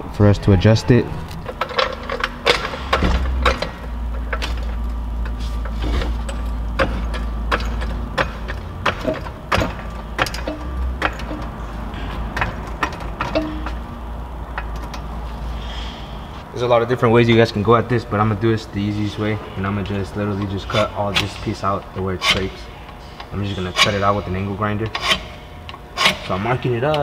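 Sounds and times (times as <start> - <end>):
low steady hum: 0.0 - 27.0
hand tools clicking on metal: 20.4 - 22.6.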